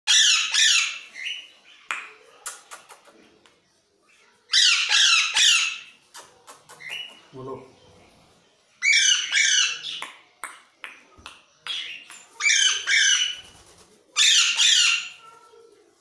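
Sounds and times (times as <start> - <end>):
parakeets squawking: 0.1 - 1.5, 4.5 - 6.0, 8.8 - 10.0, 11.7 - 13.6, 14.2 - 15.2.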